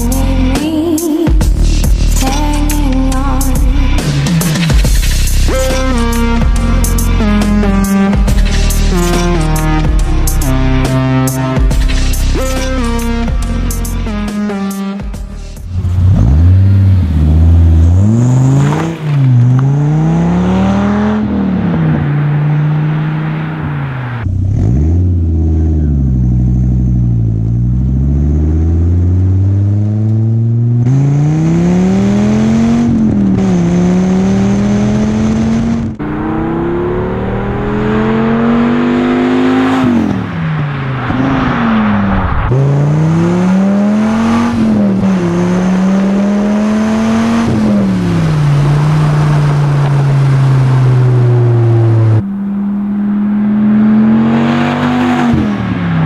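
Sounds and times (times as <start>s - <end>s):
car engine revving: 1.4s - 56.0s.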